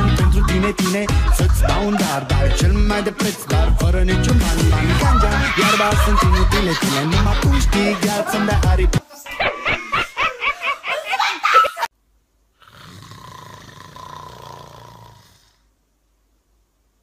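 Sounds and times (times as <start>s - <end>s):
person laughing: 0.0s - 11.9s.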